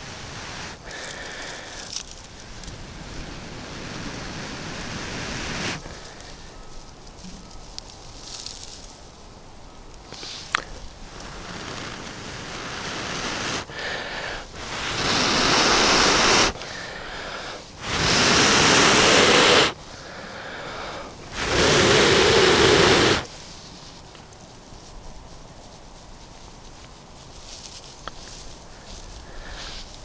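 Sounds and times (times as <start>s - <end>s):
person blowing on ember: 0.0s - 7.6s, 10.1s - 23.4s, 28.7s - 30.0s.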